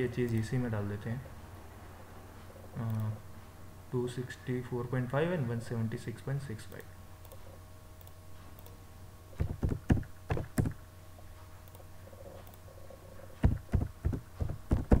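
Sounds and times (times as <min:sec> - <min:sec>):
faint steady hum: 0:00.0 - 0:15.0
keyboard keys tapping: 0:09.4 - 0:10.8, 0:13.4 - 0:15.0.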